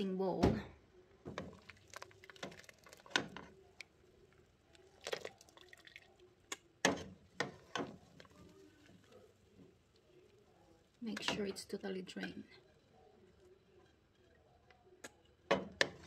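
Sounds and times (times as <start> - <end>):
water dripping into pot: 1.3 - 9.2.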